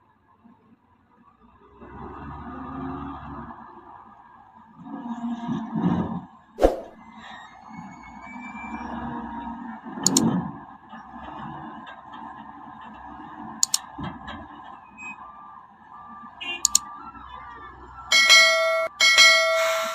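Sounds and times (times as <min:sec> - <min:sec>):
mouse clicks: 0:13.6 - 0:13.8, 0:16.6 - 0:16.8
notification bell ding: 0:18.1 - 0:19.9.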